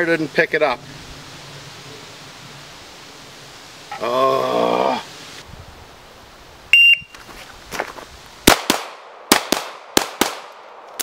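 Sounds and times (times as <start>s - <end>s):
shot timer beep: 6.8s - 7.1s
pistol firing: 8.5s - 10.6s.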